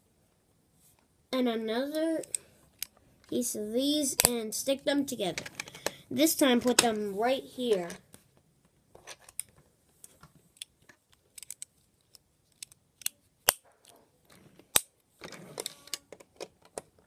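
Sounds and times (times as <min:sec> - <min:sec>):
plastic bricks clicking: 0:10.6 - 0:13.2.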